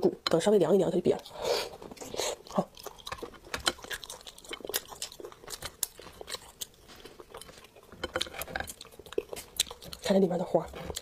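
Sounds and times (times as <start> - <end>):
crab shell cracking and snapping: 2.6 - 10.1.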